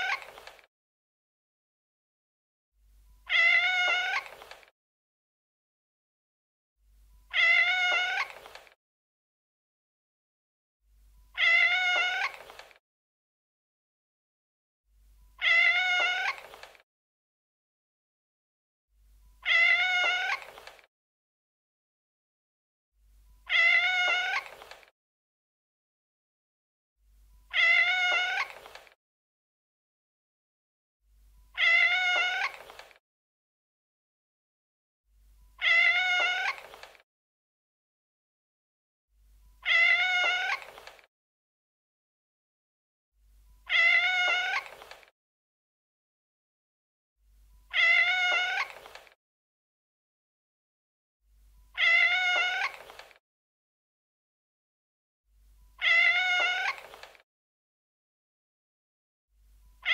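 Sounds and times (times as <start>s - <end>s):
cat meowing: 0.0s - 0.4s, 3.3s - 4.5s, 7.3s - 8.6s, 11.4s - 12.6s, 15.4s - 16.6s, 19.4s - 20.7s, 23.5s - 24.7s, 27.5s - 28.8s, 31.6s - 32.8s, 35.6s - 36.8s, 39.6s - 40.9s, 43.7s - 44.9s, 47.7s - 49.0s, 51.8s - 53.0s, 55.8s - 57.1s.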